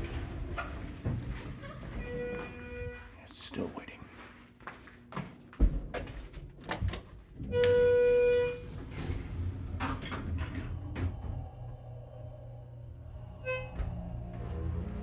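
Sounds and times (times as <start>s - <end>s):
elevator doors closing: 0.0s - 2.9s, 7.4s - 15.0s.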